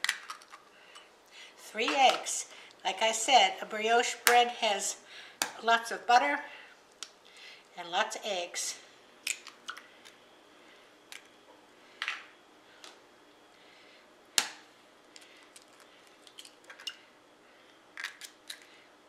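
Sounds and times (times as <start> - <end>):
loud egg crack: 0.0 - 0.7, 9.2 - 10.2, 17.9 - 18.7.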